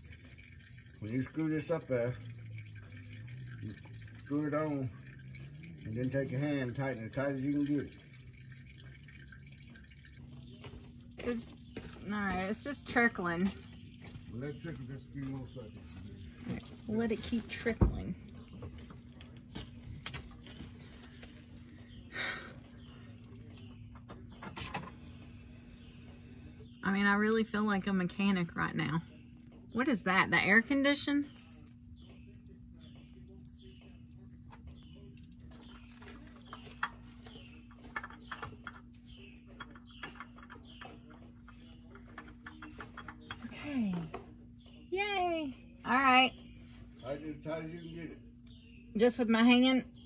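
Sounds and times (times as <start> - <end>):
oil filter clicking and scraping: 0.0 - 30.1, 31.3 - 44.6
insects buzzing: 0.0 - 50.0.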